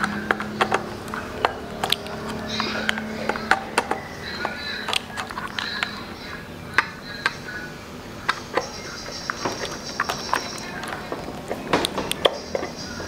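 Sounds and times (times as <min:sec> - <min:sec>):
screwdriver tapping metal and plastic: 0:00.0 - 0:05.9, 0:08.5 - 0:12.8.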